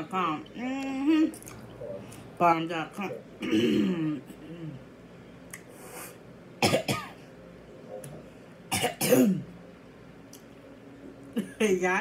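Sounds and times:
woman coughing and clearing throat: 0:03.4 - 0:04.2, 0:06.6 - 0:07.2, 0:08.7 - 0:09.5.

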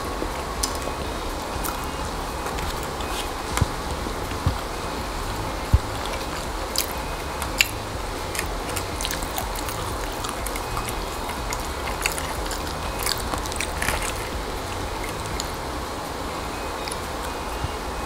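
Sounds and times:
low hum: 0:00.0 - 0:18.0
dried fish crunching: 0:05.4 - 0:15.6.

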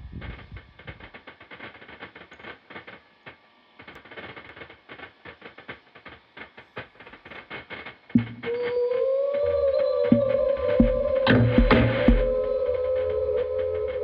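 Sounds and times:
sharp thump: 0:08.2 - 0:08.5
wavering musical tone: 0:08.2 - 0:14.0.

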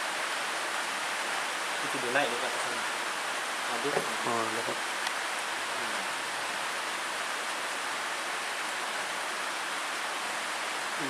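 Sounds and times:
steady outdoor hiss: 0:00.0 - 0:11.0
faint voice: 0:05.8 - 0:06.0.

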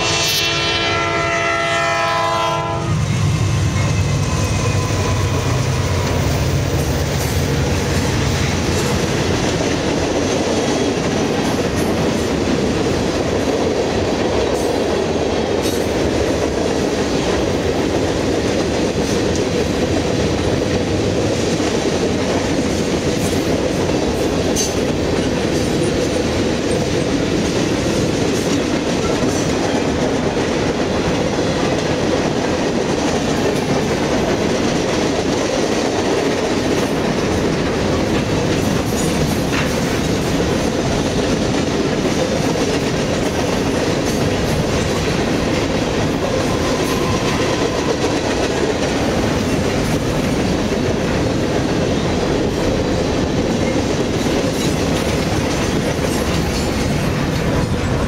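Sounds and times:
freight train wheels clattering: 0:03.1 - 0:58.0.

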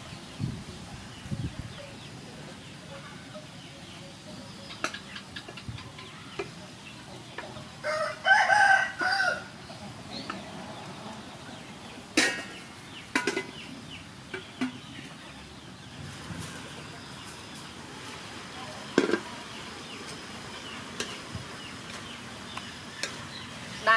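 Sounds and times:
rooster crowing: 0:07.8 - 0:09.6.

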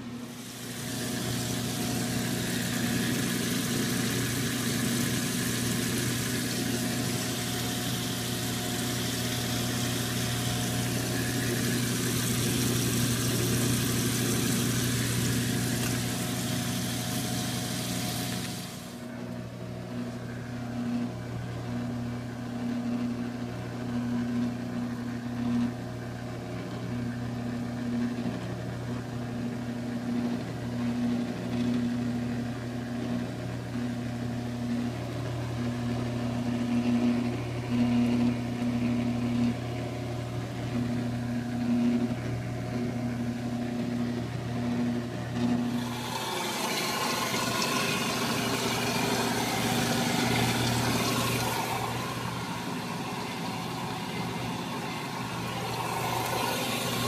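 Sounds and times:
motor hum: 0:00.0 - 0:57.0
water filling with rushing hiss: 0:00.3 - 0:19.0, 0:45.8 - 0:57.0.

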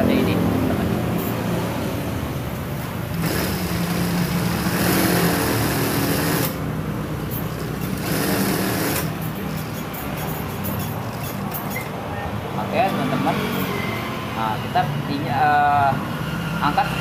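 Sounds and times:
sewing machine motor hum: 0:03.1 - 0:06.6, 0:07.8 - 0:09.2
sewing machine stitching: 0:03.2 - 0:06.6, 0:07.8 - 0:09.2.

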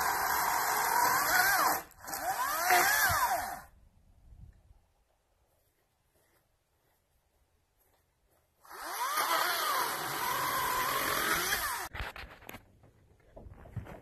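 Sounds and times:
chainsaw cutting log: 0:00.0 - 0:03.8, 0:08.6 - 0:11.9.

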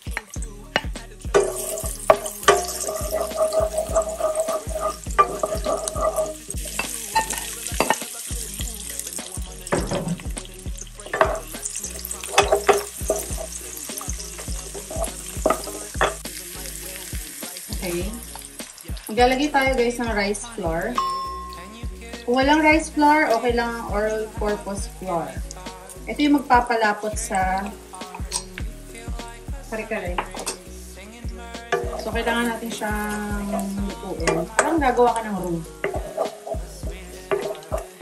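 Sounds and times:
garlic and onion sizzling: 0:00.0 - 0:38.0
wooden spoon scraping a pan: 0:01.4 - 0:08.3, 0:11.0 - 0:16.3, 0:31.8 - 0:36.6, 0:37.3 - 0:38.0.

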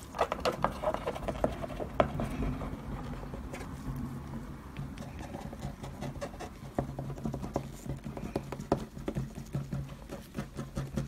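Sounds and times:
paintbrush tapping on paper: 0:04.8 - 0:11.0.

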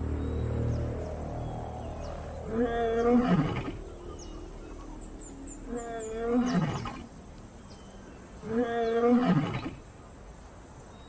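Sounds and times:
lion roaring: 0:02.4 - 0:07.2.

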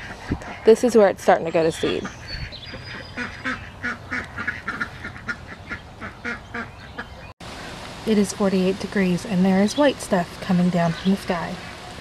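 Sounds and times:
ducks quacking: 0:00.0 - 0:07.3.

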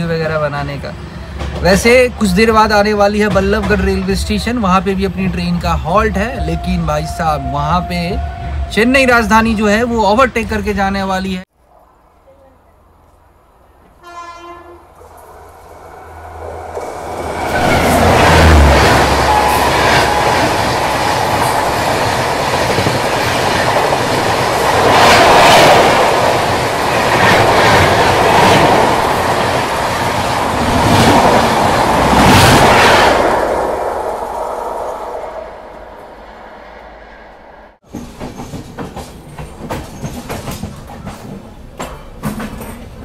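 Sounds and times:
distant train horn: 0:06.3 - 0:09.7, 0:13.9 - 0:22.5
train rushing past: 0:11.6 - 0:42.6.

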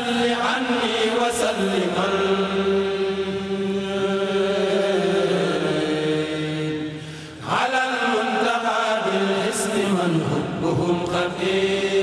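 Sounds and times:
men chanting in unison: 0:00.0 - 0:12.0.

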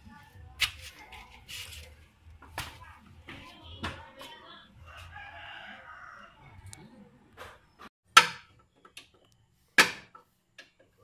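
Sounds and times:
rooster crowing: 0:04.8 - 0:06.6.

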